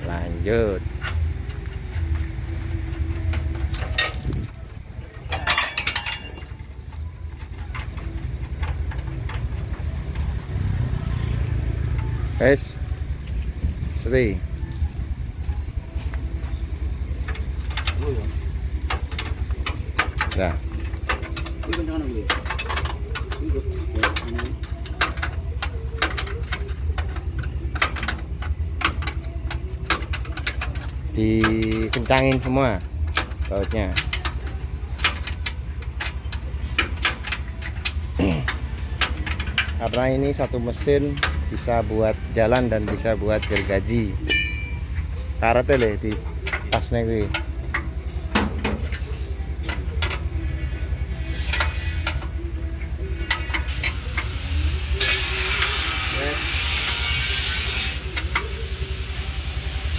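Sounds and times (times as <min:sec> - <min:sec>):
low steady rumble: 0:00.0 - 0:56.0
metal tools clinking: 0:00.9 - 0:10.5, 0:16.4 - 0:54.3
wrench clicking on bolts: 0:17.3 - 0:59.2.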